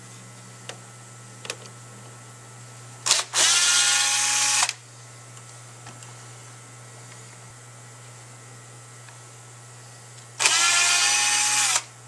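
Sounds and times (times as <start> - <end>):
power driver motor spinning: 3.0 - 4.8, 10.4 - 11.9.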